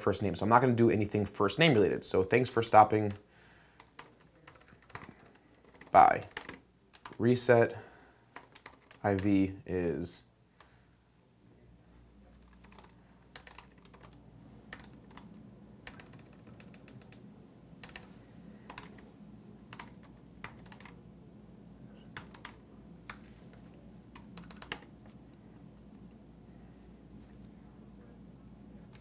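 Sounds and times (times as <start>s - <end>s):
low steady hum: 0.0s - 29.0s
typing on a keyboard: 3.8s - 7.2s, 8.4s - 9.3s, 12.4s - 17.2s, 17.8s - 18.1s, 18.7s - 19.0s, 19.7s - 21.0s, 22.1s - 23.2s, 24.1s - 24.9s.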